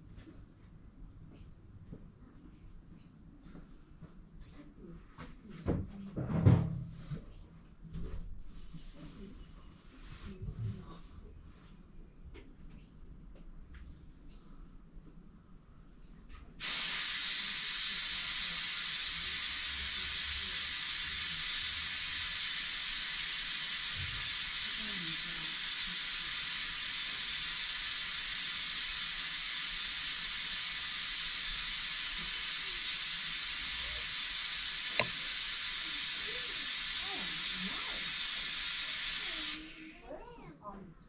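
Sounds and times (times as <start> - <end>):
vacuum bleeder air hiss: 16.6 - 40.2.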